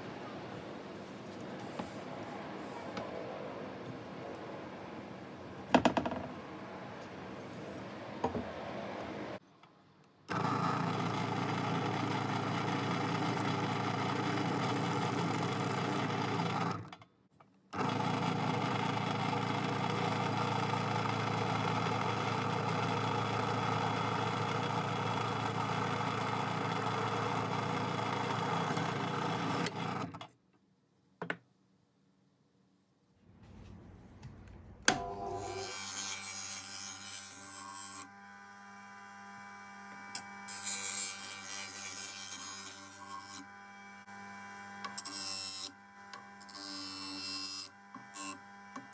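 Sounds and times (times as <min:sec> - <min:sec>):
drill press motor running: 0:10.3 - 0:16.8, 0:17.8 - 0:30.2.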